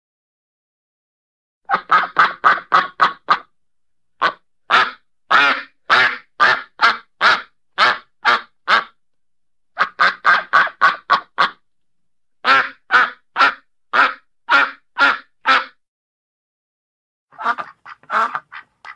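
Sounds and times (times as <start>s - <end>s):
duck quacking: 1.7s - 3.5s, 4.2s - 9.0s, 9.8s - 11.6s, 12.4s - 15.8s, 17.3s - 18.9s.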